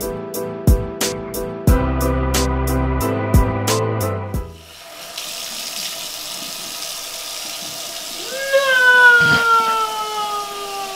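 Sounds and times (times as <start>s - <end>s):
water running from tap: 4.4s - 10.9s.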